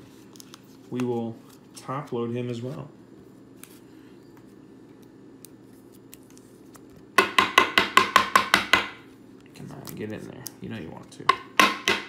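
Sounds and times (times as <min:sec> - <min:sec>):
sharp knocks of plastic: 0:07.2 - 0:09.0, 0:11.3 - 0:12.0.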